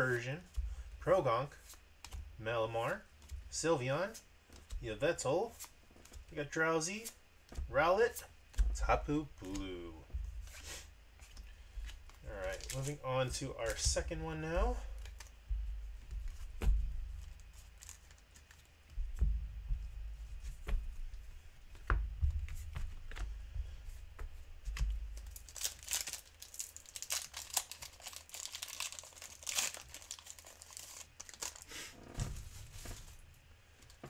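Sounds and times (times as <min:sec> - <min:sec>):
foil wrapper crinkling and tearing: 0:12.3 - 0:13.0, 0:25.2 - 0:31.8.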